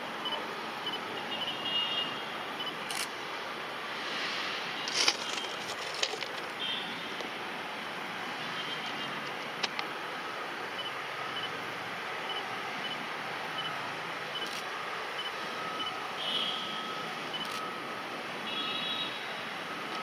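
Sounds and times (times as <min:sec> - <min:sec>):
train rolling on track: 0:04.4 - 0:06.6.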